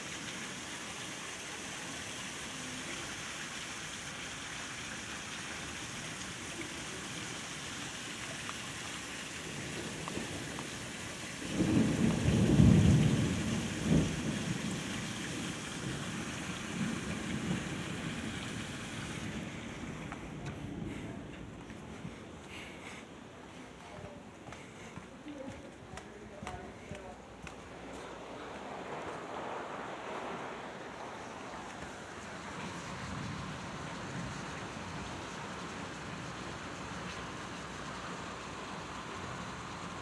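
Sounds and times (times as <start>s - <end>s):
heavy rain falling: 0.0s - 40.0s
thunder rumbling: 9.3s - 22.6s, 27.2s - 37.8s
sharp thunder crack: 11.4s - 18.3s.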